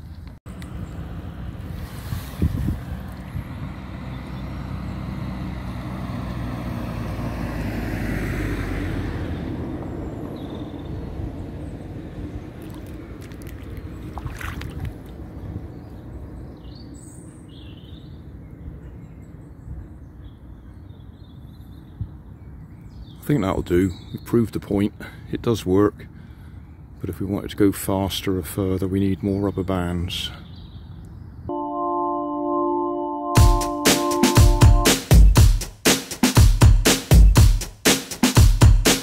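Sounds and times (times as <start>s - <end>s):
low outdoor background: 0.0s - 38.2s
car passing on wet road: 1.0s - 10.1s, 11.4s - 15.4s.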